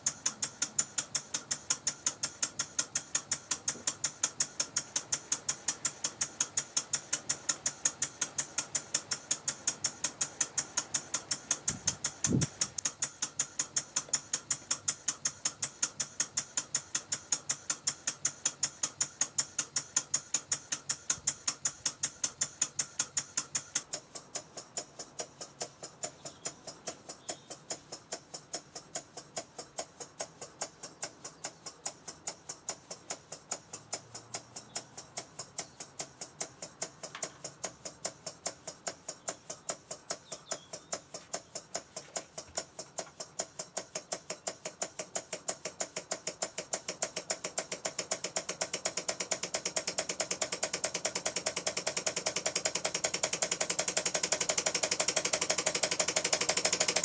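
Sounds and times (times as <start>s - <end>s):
model steam engine puffing: 0.0s - 57.0s.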